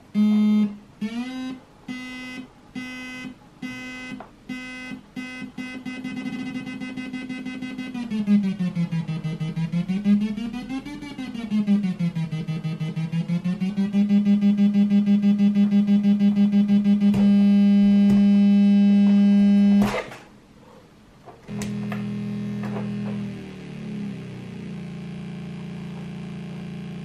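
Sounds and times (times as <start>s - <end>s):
buzzy square-wave drone: 0.2s - 20.0s, 21.5s - 27.0s
clicks: 21.3s - 23.3s.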